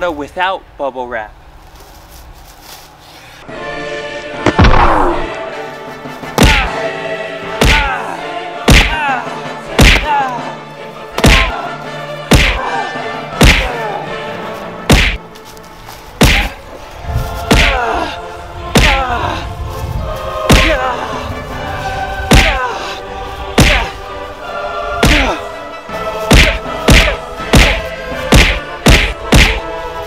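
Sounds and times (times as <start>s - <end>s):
background music: 3.4s - 30.0s
metal bar hitting pinata: 9.8s - 10.1s, 13.4s - 13.7s, 14.9s - 15.2s, 16.2s - 16.6s.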